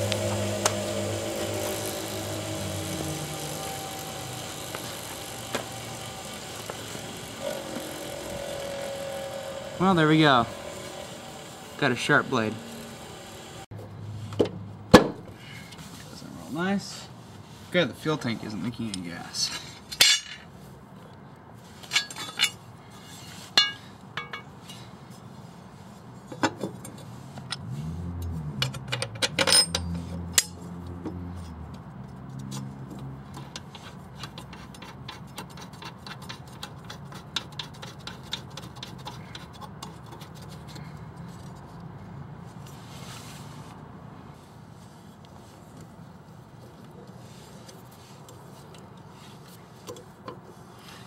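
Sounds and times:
low drone: 0.0 - 13.7
metal clinks and knocks: 23.6 - 24.8, 28.6 - 31.6.

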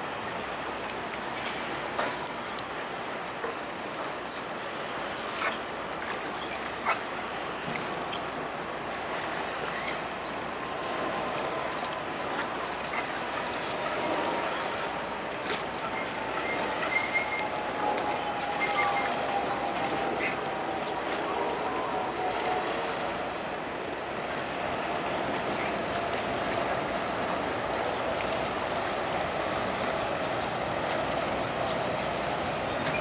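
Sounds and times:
light wind: 0.0 - 33.0
water lapping: 0.0 - 33.0
ferry engine whine: 8.4 - 33.0.

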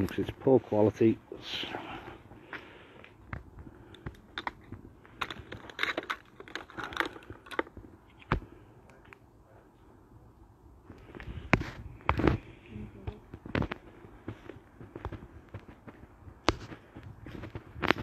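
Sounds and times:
small clicks and crackles: 3.0 - 9.2.

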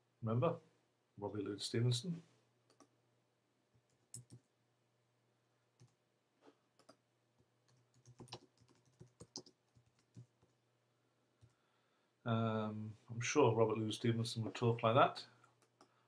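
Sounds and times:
computer keyboard typing: 4.1 - 4.4, 7.6 - 10.6.

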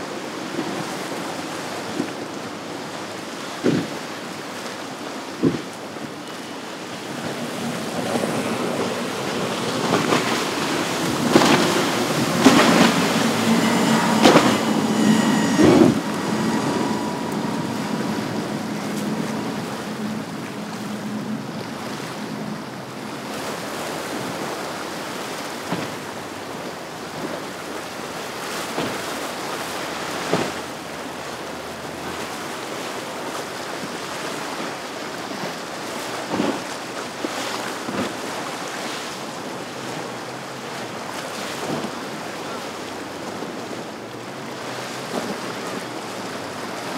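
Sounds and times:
powerboat engine drone: 6.2 - 24.9
waves washing: 6.4 - 24.0.

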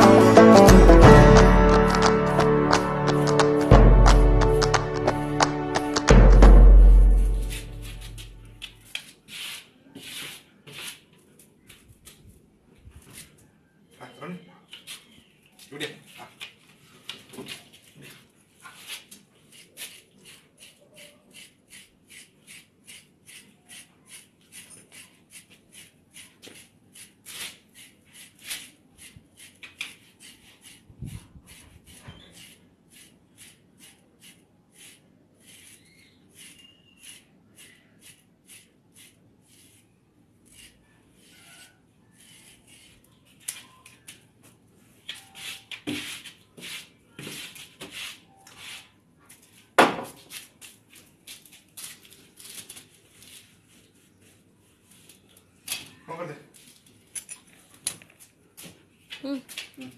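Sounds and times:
brush raking through dog fur: 7.2 - 11.0, 18.1 - 42.9.

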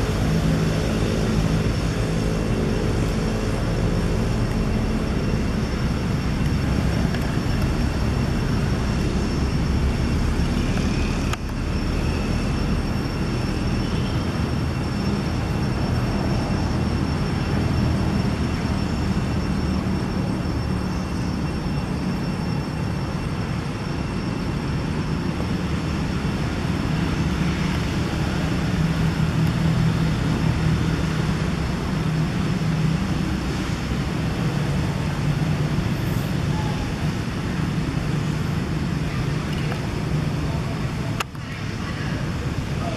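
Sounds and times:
low outdoor rumble: 0.0 - 42.9.

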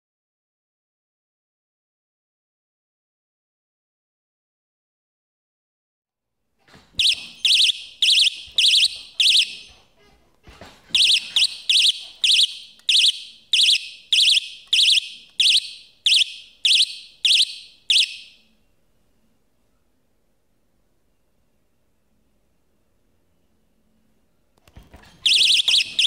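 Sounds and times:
shrill warbling alarm beeps: 7.0 - 9.7, 11.0 - 18.5, 25.2 - 26.0.

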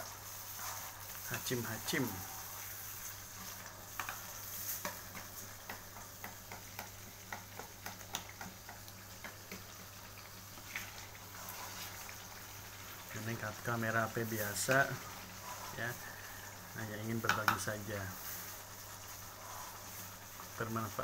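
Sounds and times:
spatula scraping a wok: 0.0 - 5.4, 10.6 - 12.3
sauce sizzling: 0.0 - 21.0.

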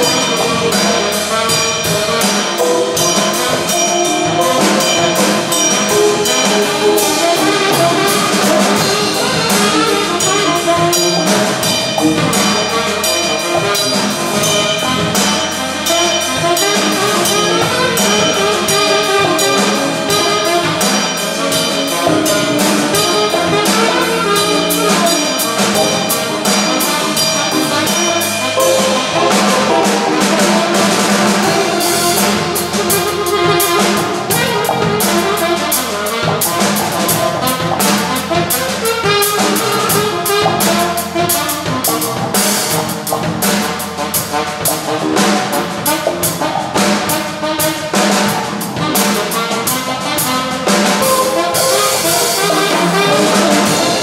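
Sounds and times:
drum kit with cymbal strokes: 0.0 - 54.0
electric bass: 0.0 - 54.0
saxophones: 0.0 - 54.0
electric guitar: 16.4 - 41.2.

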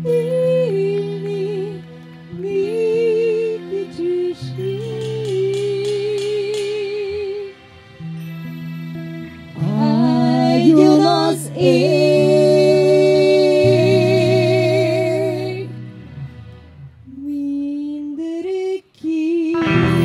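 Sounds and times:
woman singing with vibrato: 0.0 - 7.6, 9.6 - 15.8, 17.1 - 20.0
sustained low chords: 19.6 - 20.0.

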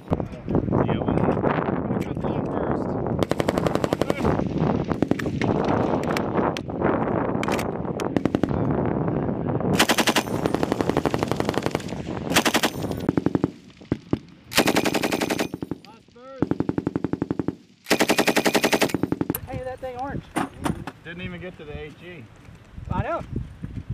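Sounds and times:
machine guns firing bursts: 3.2 - 4.3, 9.8 - 13.6, 14.5 - 15.8, 16.4 - 19.4.

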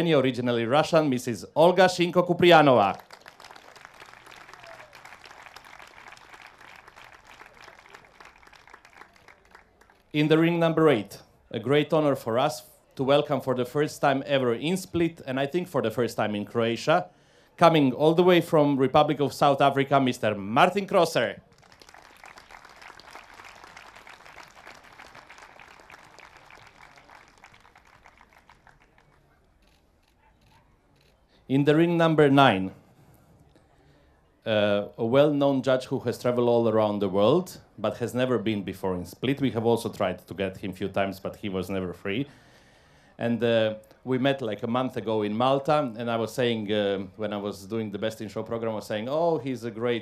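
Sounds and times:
hands clapping applause: 2.6 - 10.2, 21.4 - 29.4.

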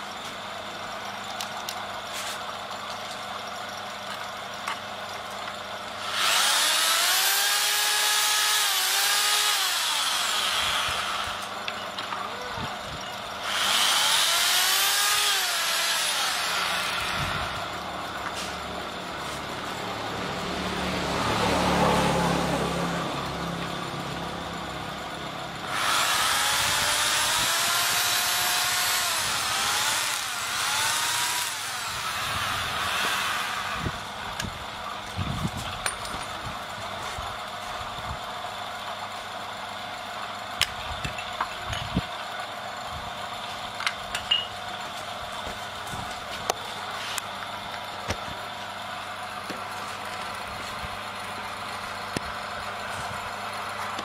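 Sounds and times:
electric drill whirring: 5.0 - 11.7, 12.8 - 19.4, 25.5 - 35.8.

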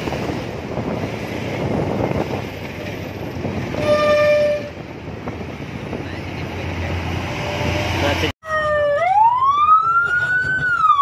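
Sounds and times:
vehicle horn: 3.7 - 4.8.

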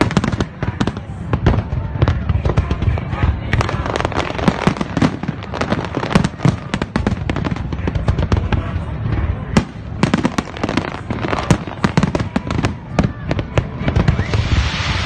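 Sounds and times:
fireworks bangs and crackles: 0.0 - 15.0
low rumble: 12.4 - 15.0.

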